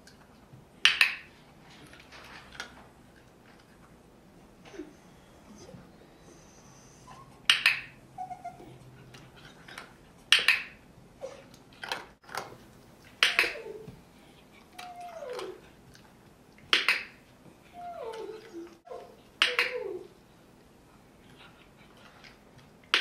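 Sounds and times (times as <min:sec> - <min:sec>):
dog whining: 0:04.6 - 0:09.8, 0:11.2 - 0:11.6, 0:13.2 - 0:15.8, 0:17.6 - 0:20.2.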